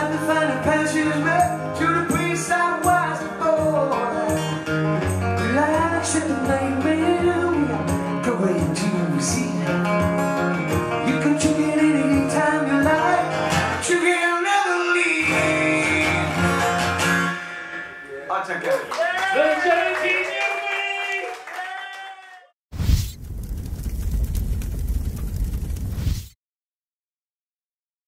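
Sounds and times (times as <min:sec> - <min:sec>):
man singing: 0:00.0 - 0:10.0, 0:10.9 - 0:16.5
strummed acoustic guitar: 0:00.0 - 0:17.8.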